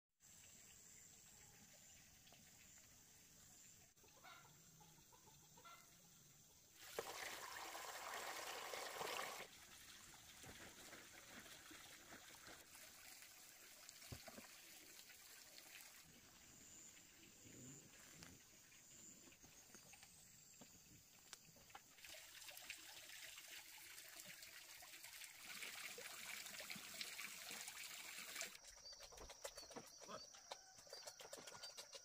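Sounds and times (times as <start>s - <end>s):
chickens clucking: 4.0s - 5.9s
water pouring: 6.8s - 16.4s, 21.6s - 28.6s.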